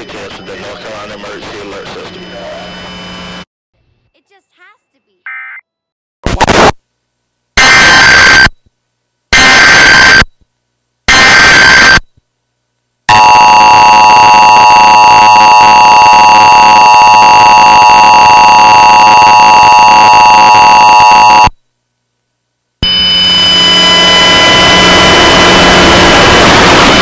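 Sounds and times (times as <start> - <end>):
two-tone alarm: 2.0 - 3.4, 7.6 - 8.6, 9.4 - 10.3, 11.1 - 12.1, 13.1 - 21.6, 22.8 - 27.0.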